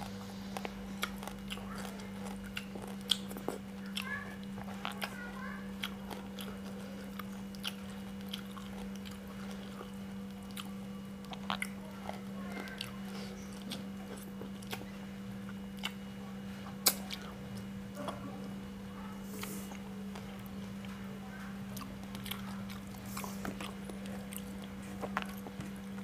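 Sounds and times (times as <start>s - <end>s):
person chewing: 0.0s - 18.6s, 19.2s - 21.0s, 21.7s - 26.0s
steady low hum: 0.0s - 26.0s
wet lip-smacks and clicks: 16.8s - 17.3s.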